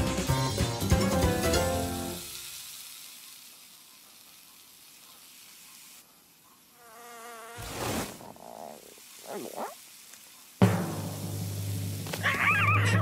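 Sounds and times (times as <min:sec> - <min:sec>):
faint air hiss: 0:01.5 - 0:12.6
cartoon fly buzz: 0:06.7 - 0:09.8.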